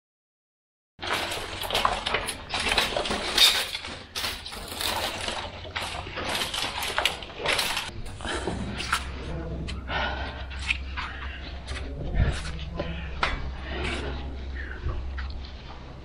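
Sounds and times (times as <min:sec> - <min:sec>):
metal scrap clinking and scraping: 0:01.0 - 0:07.9.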